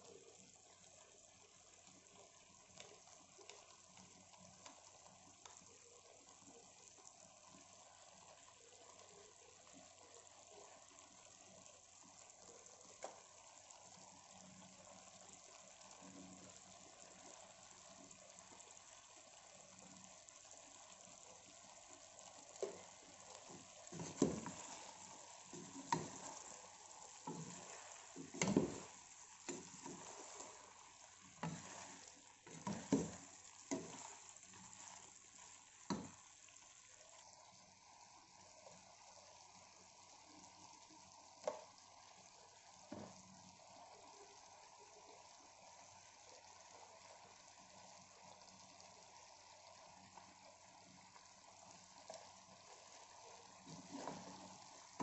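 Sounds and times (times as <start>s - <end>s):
frying sizzle: 0.0s - 55.0s
wooden spoon scraping a pot: 22.6s - 35.1s.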